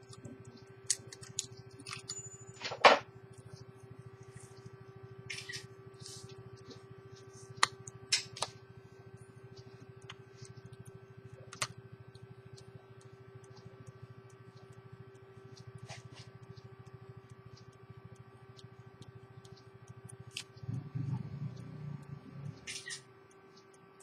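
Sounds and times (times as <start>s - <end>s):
small objects clicking and knocking: 0.0s - 3.0s
steady low hum: 0.0s - 24.0s.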